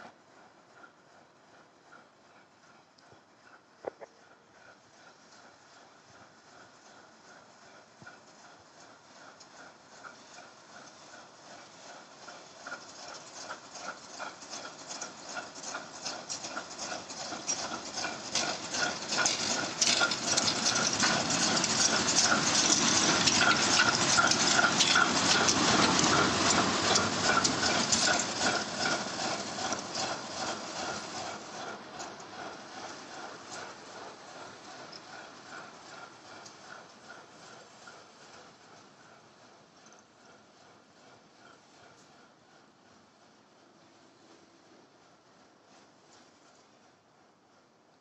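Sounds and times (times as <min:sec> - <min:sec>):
diesel locomotive passing: 0:04.2 - 0:47.6.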